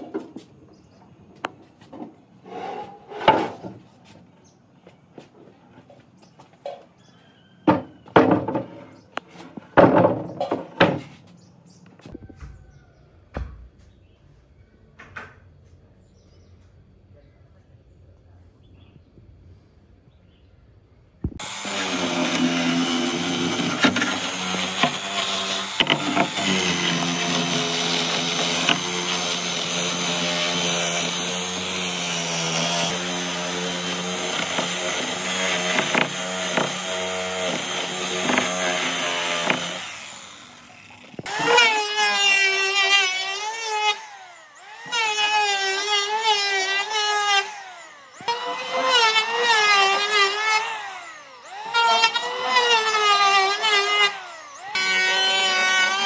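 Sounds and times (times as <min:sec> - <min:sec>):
power tool running: 0:21.3 - 0:56.0.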